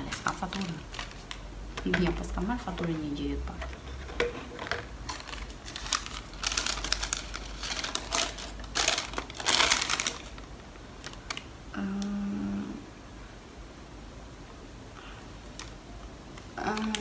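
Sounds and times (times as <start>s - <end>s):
paper crinkling and rustling: 0.0s - 3.1s, 3.7s - 11.5s.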